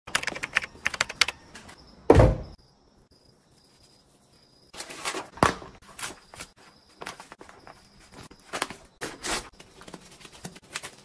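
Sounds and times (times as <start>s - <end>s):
loud heavy thump: 2.1s - 2.6s.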